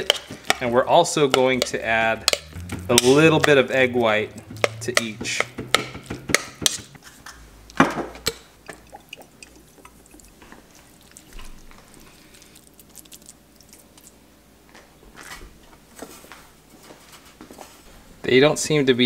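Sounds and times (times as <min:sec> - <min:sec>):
wet squishing of mixture: 0:00.0 - 0:06.9, 0:08.1 - 0:14.2
fork scraping mixing bowl: 0:00.0 - 0:07.2
dry crumbs rustling: 0:09.5 - 0:14.2.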